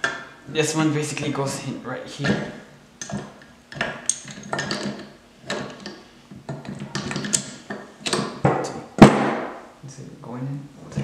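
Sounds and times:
metal parts clinking and knocking: 0:03.1 - 0:08.3.

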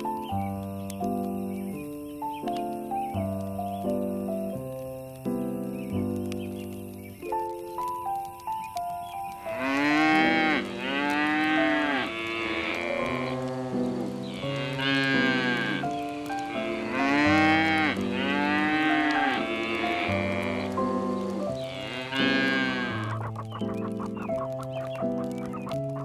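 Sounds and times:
background music with held notes: 0:00.0 - 0:26.0
animal calling: 0:09.3 - 0:26.0.

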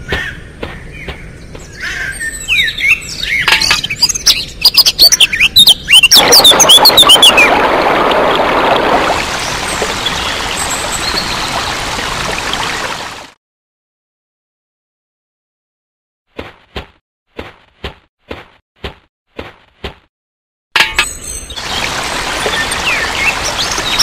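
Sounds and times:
birds chirping: 0:00.0 - 0:13.2, 0:21.0 - 0:24.0
water pouring from a spigot: 0:06.1 - 0:13.3, 0:21.6 - 0:24.0.

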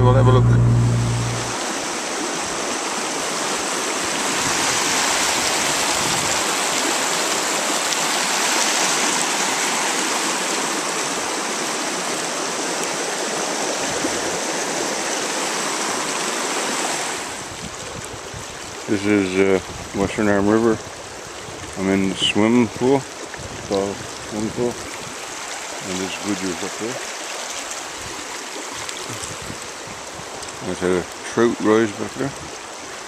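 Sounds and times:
river rushing over rocks: 0:00.6 - 0:18.8, 0:24.1 - 0:30.5.

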